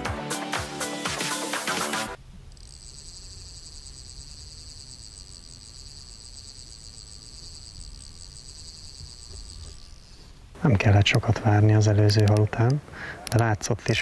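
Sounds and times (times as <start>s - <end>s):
insects trilling: 2.2s - 13.3s.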